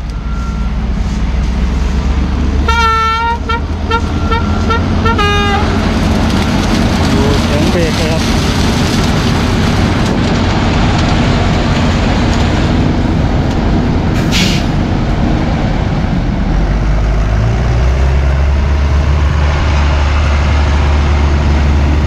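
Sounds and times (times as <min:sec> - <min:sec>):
harvester machinery running: 0:00.0 - 0:22.0
tractor diesel engine: 0:00.0 - 0:22.0
short hiss of air: 0:14.2 - 0:14.8.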